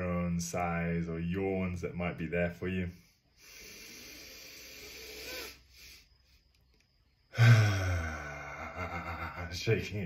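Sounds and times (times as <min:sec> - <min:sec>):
man breathing in deeply: 0:02.9 - 0:06.4, 0:07.3 - 0:09.3
man sighing loudly: 0:07.3 - 0:09.5.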